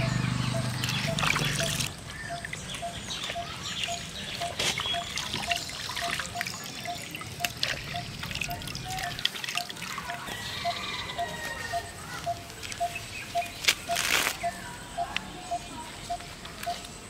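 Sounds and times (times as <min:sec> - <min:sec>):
water trickling and dripping: 0:00.8 - 0:10.8.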